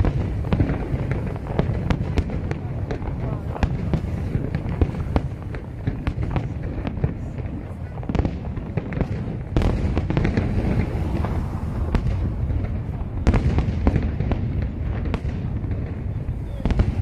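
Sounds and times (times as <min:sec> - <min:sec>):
fireworks bursting: 0:00.0 - 0:17.0
fireworks crackles: 0:00.0 - 0:17.0
low rumble: 0:09.4 - 0:16.0.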